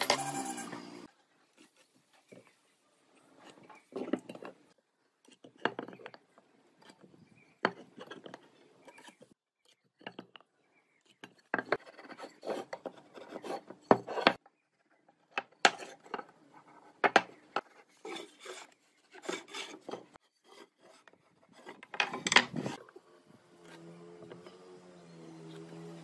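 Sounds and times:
wood being scraped by hand: 17.6s - 21.9s.

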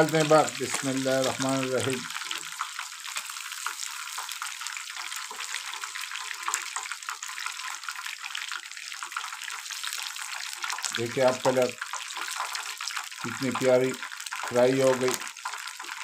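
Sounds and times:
fish deep-frying in oil: 0.0s - 16.0s.

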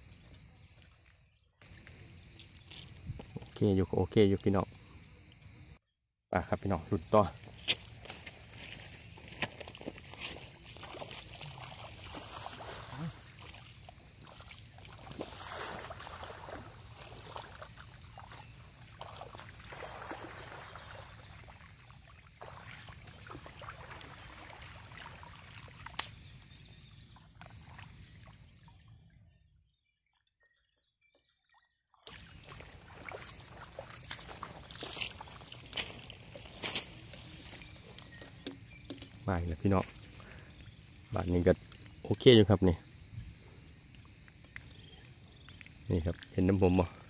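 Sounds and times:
net splashing through water: 7.8s - 26.2s, 32.0s - 37.7s.

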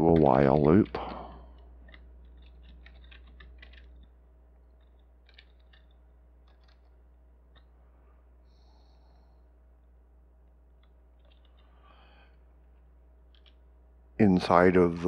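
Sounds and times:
keyboard keystrokes: 0.0s - 4.1s, 4.8s - 6.9s
steady low hum: 0.0s - 15.0s.

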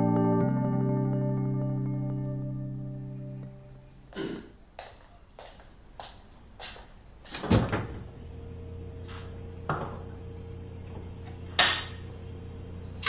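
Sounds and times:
refrigerator hum: 7.3s - 13.0s.

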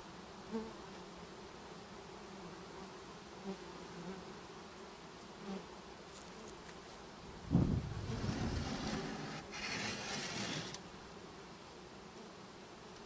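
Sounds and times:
honeybees buzzing: 0.0s - 13.0s
bee passing close: 7.0s - 12.9s.

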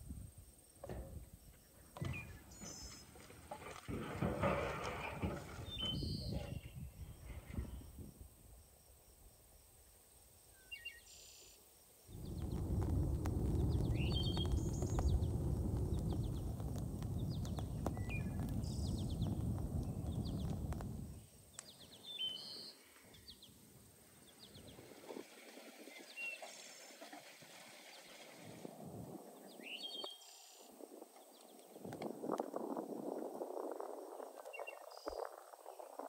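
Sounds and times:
small birds chirping: 10.5s - 24.8s
wood fire crackling: 12.1s - 22.2s, 30.8s - 34.1s.

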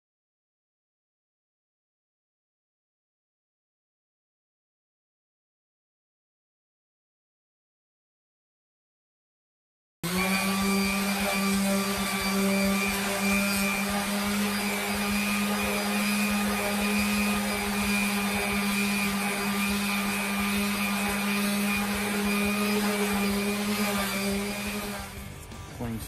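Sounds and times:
orbital sander on metal: 10.0s - 25.8s.

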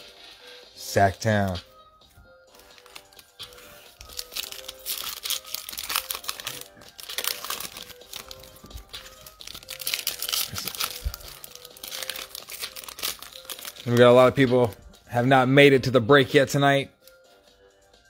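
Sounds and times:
quiet background music: 0.0s - 18.0s
foil wrapper crinkling and tearing: 2.5s - 14.8s.

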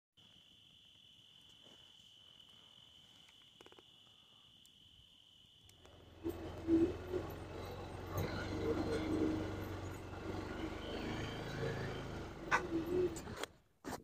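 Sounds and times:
faint crackles: 0.2s - 4.9s
crickets trilling: 0.2s - 13.2s
low humming sound: 0.2s - 13.5s.

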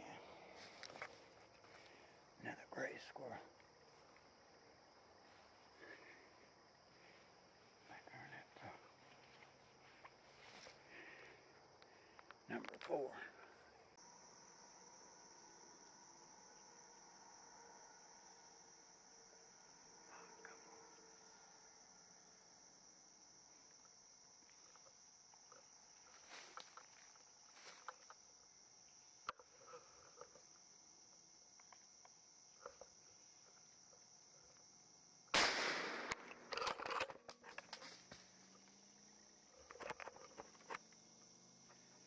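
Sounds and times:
high-pitched insect drone: 14.0s - 35.3s
gunshot: 35.3s - 36.5s.

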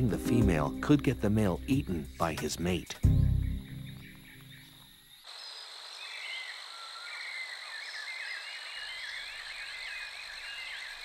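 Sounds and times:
soft music: 0.0s - 5.0s
insect drone: 0.5s - 11.0s.

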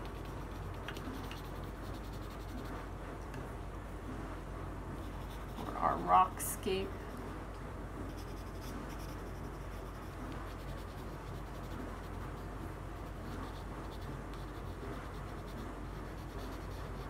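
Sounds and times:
pencil scratching on paper: 0.0s - 2.8s, 5.0s - 6.2s, 8.1s - 17.0s.

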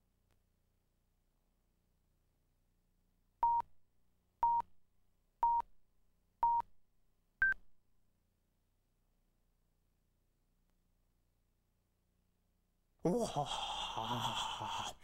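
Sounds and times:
countdown beeps: 5.4s - 5.6s.

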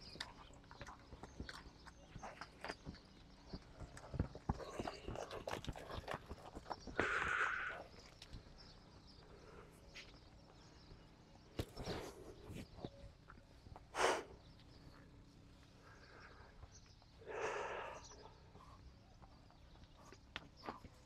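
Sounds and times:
horse puffing breath: 6.9s - 7.8s, 13.9s - 14.5s.

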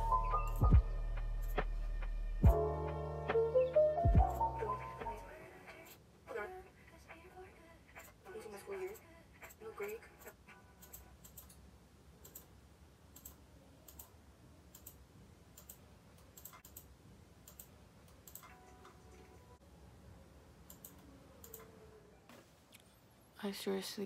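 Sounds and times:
computer mouse clicking: 10.2s - 11.6s, 12.2s - 12.5s, 13.1s - 19.0s, 20.6s - 21.8s.

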